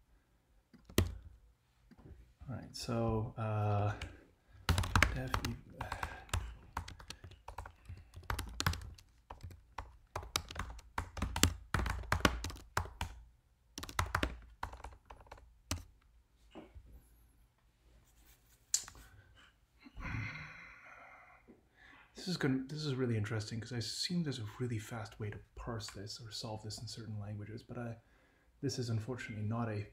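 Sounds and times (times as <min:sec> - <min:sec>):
fast typing on a keyboard: 0:00.8 - 0:01.2, 0:04.7 - 0:13.2, 0:13.8 - 0:15.9.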